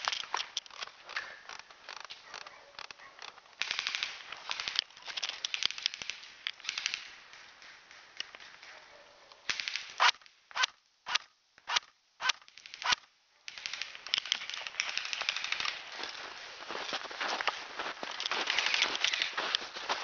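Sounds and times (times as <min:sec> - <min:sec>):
airsoft guns firing: 0:00.8 - 0:16.5, 0:18.4 - 0:19.6
sharp gunshot cracks: 0:09.5 - 0:14.1.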